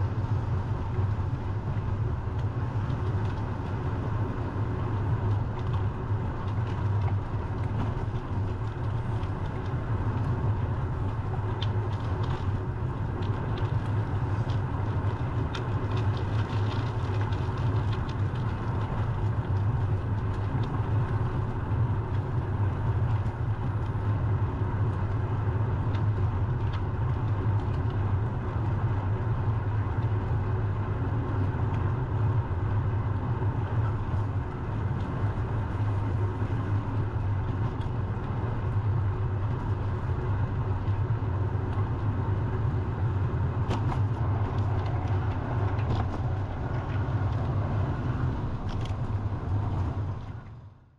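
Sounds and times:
road noise: 0.0s - 50.9s
wind rumble on microphone: 0.0s - 50.9s.

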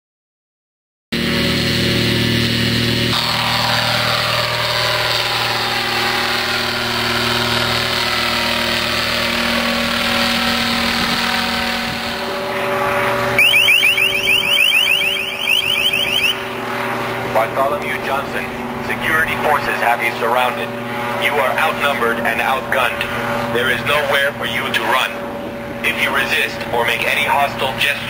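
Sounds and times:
helicopter engine and rotor: 1.2s - 28.0s
electronic warning chirps: 13.4s - 16.5s.

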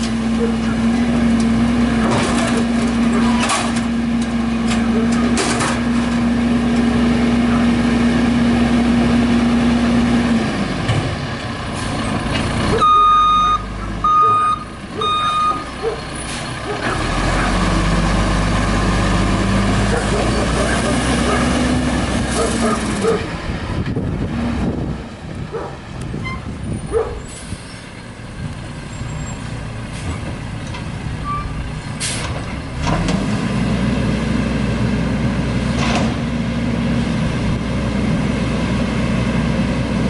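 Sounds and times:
diesel engine revving: 0.0s - 40.0s
backup alarm beeping: 12.8s - 15.6s.

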